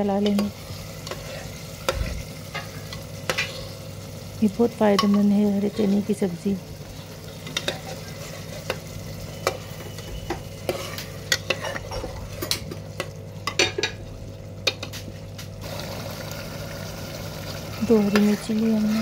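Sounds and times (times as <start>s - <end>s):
thick gravy sizzling: 0.0s - 19.0s
metal ladle scraping a pot: 9.4s - 12.6s.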